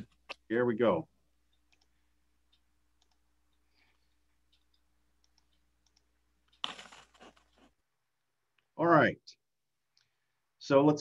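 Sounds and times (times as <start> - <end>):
computer mouse clicks: 1.5 - 7.7.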